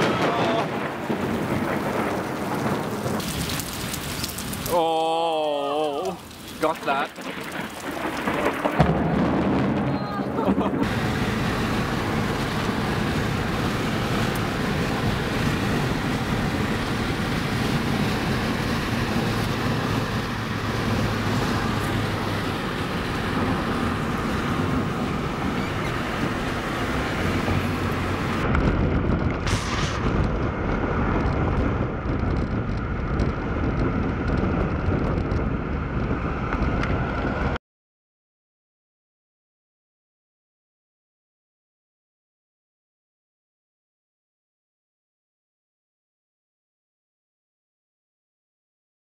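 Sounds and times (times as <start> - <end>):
car interior road and engine noise: 10.8 - 37.6.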